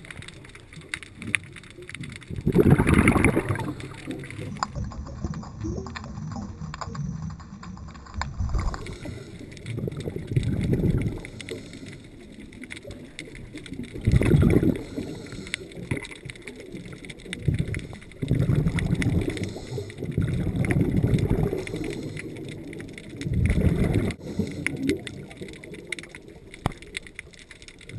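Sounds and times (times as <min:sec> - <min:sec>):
faint crackle of small clicks: 0:00.0 - 0:27.9
rumbling exhaled bubbles: 0:00.0 - 0:27.9
diver breathing through regulator: 0:08.8 - 0:09.7, 0:11.0 - 0:12.4, 0:14.5 - 0:16.1, 0:19.1 - 0:20.4, 0:21.3 - 0:22.7, 0:24.0 - 0:25.0.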